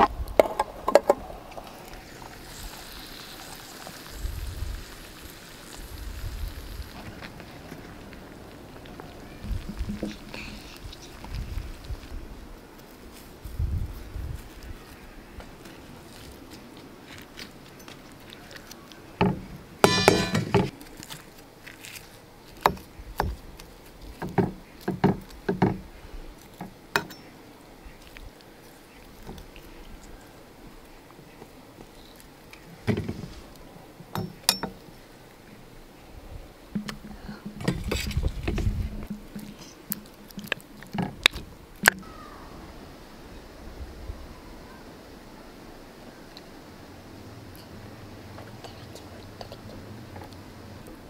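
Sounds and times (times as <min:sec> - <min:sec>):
knife tapping an earthenware bowl: 0:19.8 - 0:20.7
crust crunching: 0:19.8 - 0:24.2.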